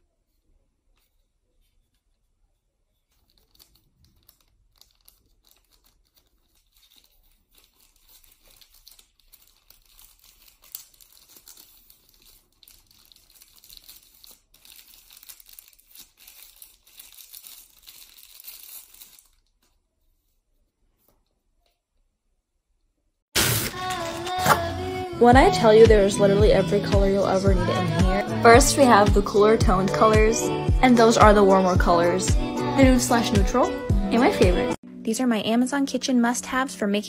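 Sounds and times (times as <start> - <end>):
plastic packaging crinkling and tearing: 2.9 - 19.8, 23.4 - 24.7.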